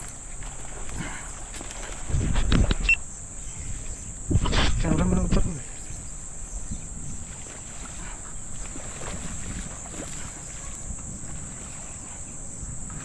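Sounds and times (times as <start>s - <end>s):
high-pitched insect drone: 0.0s - 13.0s
wind buffeting microphone: 0.0s - 13.0s.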